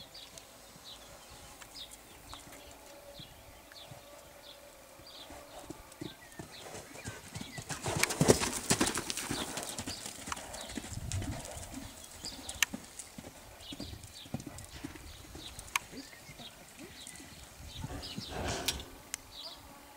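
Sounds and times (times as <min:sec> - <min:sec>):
horse hoofbeats on sand: 0:05.5 - 0:18.7.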